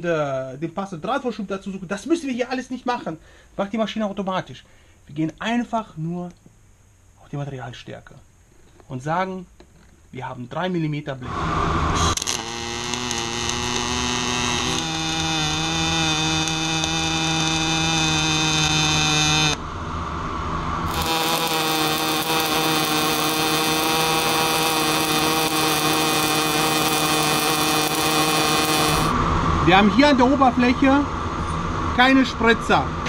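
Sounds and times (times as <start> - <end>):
welding arc buzzing hum: 12.0 - 19.7, 20.8 - 29.2.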